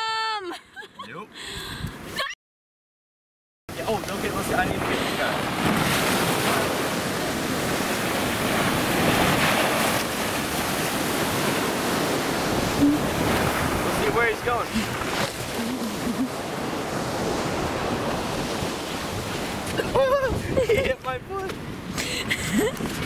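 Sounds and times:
ocean surf washing on beach: 3.7s - 22.0s
wind on microphone: 4.1s - 23.0s.

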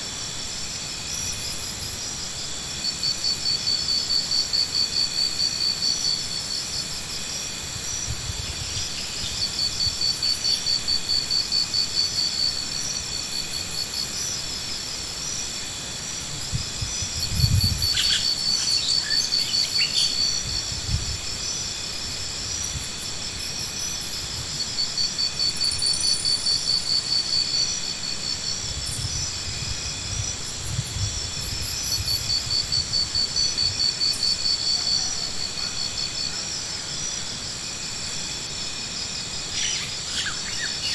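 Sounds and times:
insects chirping: 0.0s - 40.9s.

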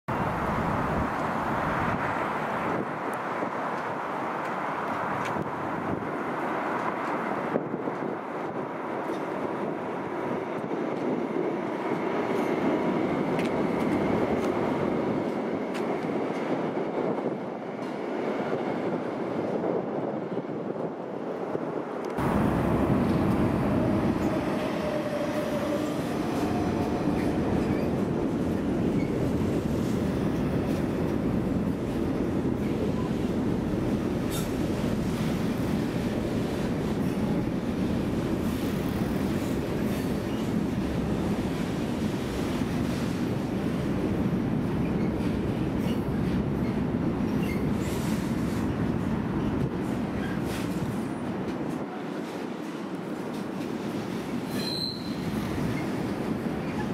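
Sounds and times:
train wheels rumbling on rail: 0.1s - 56.9s
high wheel squeaks: 54.5s - 55.9s.

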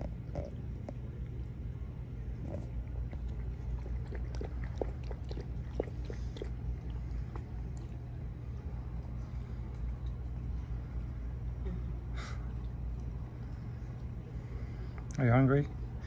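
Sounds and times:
steady low hum: 0.0s - 16.0s
puppy mouth clicks and smacks: 2.4s - 8.0s.

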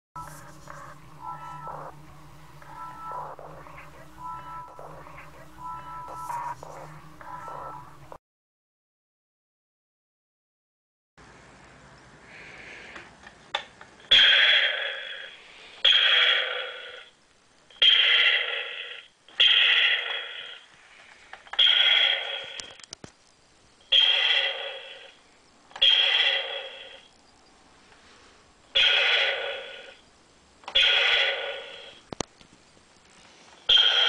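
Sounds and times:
blaster sound from small speaker: 0.2s - 8.2s.

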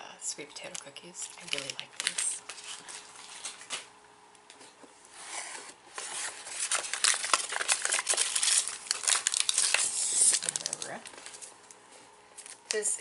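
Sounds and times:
snack box and wrappers crinkling: 0.6s - 3.9s, 6.0s - 11.6s, 12.4s - 12.8s.

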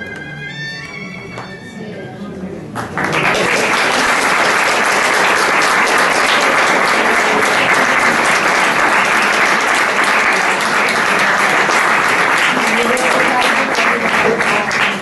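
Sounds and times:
audience applauding: 2.8s - 15.0s.

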